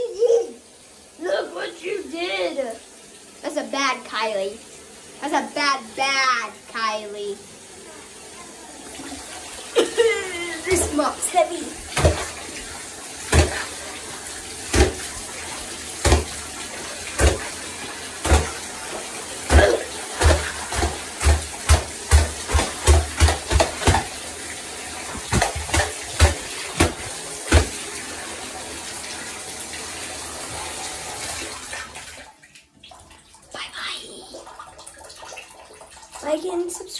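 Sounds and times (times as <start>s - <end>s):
tap water running into bathtub: 0.0s - 36.9s.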